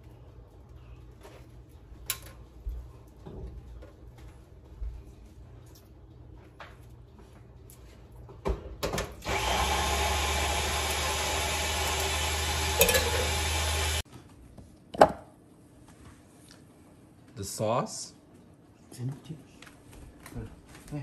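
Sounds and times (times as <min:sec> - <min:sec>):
electric blender running: 0:09.2 - 0:14.0.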